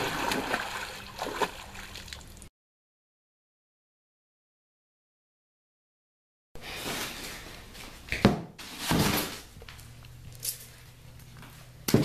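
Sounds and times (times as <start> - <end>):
rustling scrape: 6.6 - 8.0.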